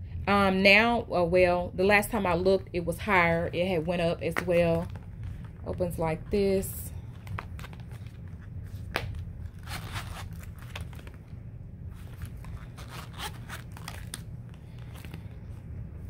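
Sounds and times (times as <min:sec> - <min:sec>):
wallet handling clicks and rustles: 0:03.6 - 0:16.0
zipper rasping: 0:12.0 - 0:14.2.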